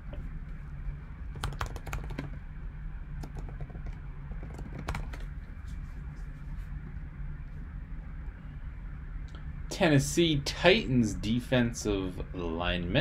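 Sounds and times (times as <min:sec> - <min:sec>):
steady low hum: 0:00.0 - 0:13.0
typing on keyboard: 0:01.3 - 0:02.4, 0:03.2 - 0:05.3.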